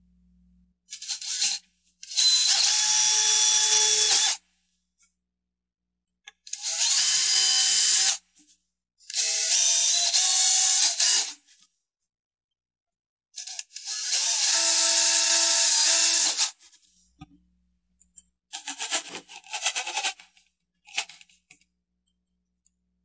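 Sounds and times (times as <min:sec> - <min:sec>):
cordless drill boring wood: 0:00.9 - 0:04.4, 0:06.5 - 0:08.2, 0:09.1 - 0:11.4, 0:13.4 - 0:16.6.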